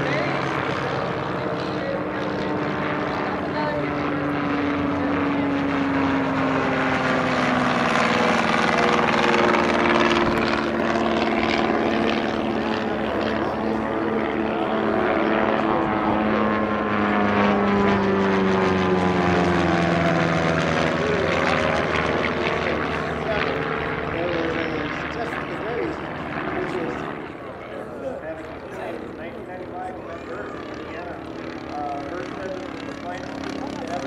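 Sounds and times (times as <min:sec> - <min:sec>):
propeller aircraft engine drone: 0:00.0 - 0:34.0.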